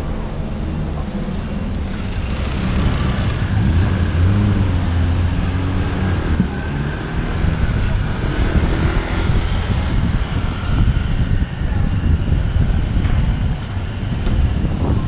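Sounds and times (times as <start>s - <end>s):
engine note rising and falling: 0.0s - 11.4s
traffic engines rumbling: 0.0s - 15.0s.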